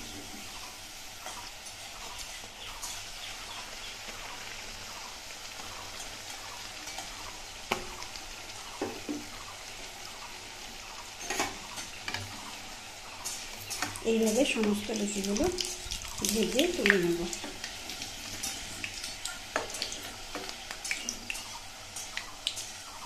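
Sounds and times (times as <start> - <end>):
food sizzling in hot oil: 0.0 - 23.0.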